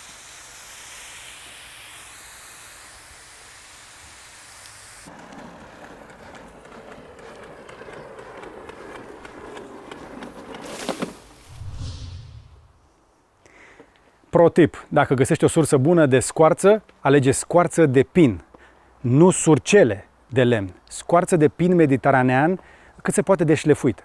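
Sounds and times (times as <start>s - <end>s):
garden hose spraying water: 0.0s - 5.1s.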